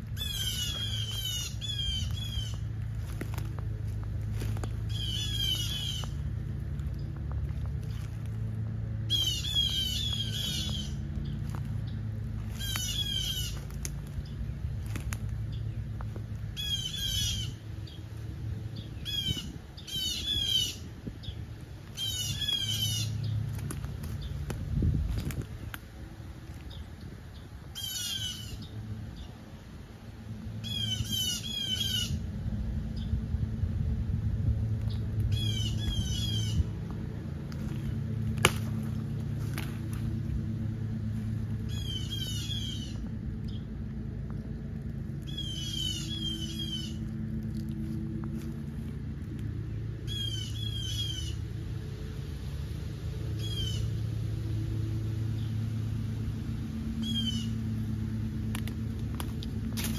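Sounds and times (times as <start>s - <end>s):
birds giving harsh alarm calls: 0.0s - 25.7s, 26.7s - 29.3s, 30.6s - 32.3s, 34.8s - 40.2s, 40.8s - 43.7s, 45.1s - 47.3s, 50.0s - 51.6s, 53.3s - 54.0s, 56.9s - 58.3s
steady low rumble: 0.0s - 59.9s.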